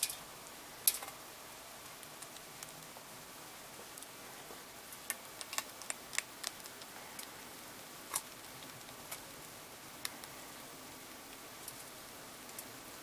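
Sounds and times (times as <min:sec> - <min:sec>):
hamster crunching: 0:04.9 - 0:07.4, 0:08.1 - 0:09.3.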